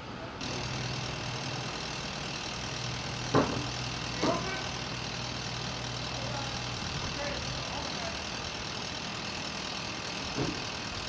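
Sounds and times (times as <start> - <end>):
vehicle engine idling: 0.1 - 11.0
sharp knocks: 3.3 - 4.5.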